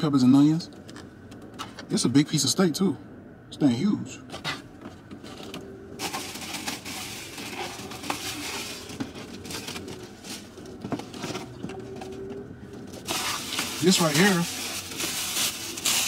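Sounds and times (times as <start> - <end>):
plastic bag rustling: 5.3 - 16.0.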